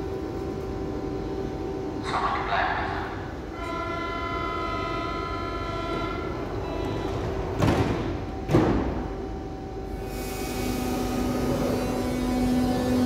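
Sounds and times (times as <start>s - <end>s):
multi-note door warning tone: 3.5s - 10.0s
sliding doors banging shut: 7.4s - 9.0s.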